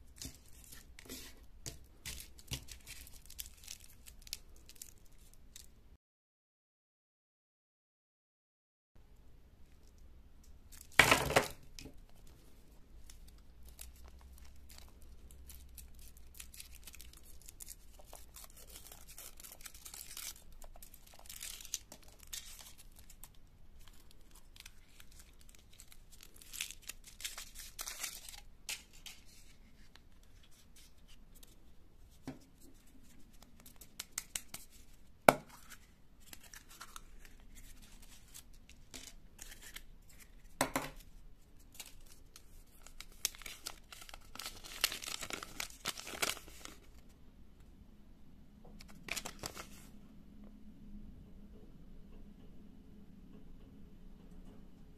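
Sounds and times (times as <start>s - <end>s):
candy wrappers crinkling and tearing: 2.0s - 5.7s, 10.7s - 29.6s, 41.7s - 47.0s, 48.8s - 49.9s.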